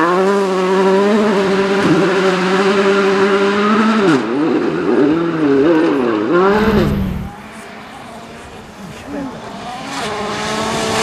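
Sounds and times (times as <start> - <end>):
rally car engine revving: 0.2 - 7.5.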